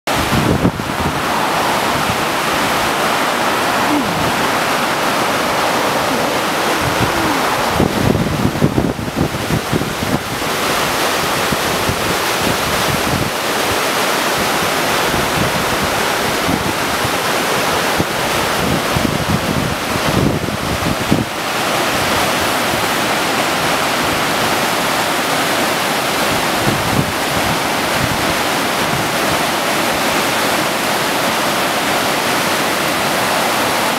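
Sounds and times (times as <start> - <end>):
wind buffeting microphone: 0.1 - 13.8, 14.4 - 24.5, 26.2 - 29.4
water rushing over spillway: 0.1 - 33.9.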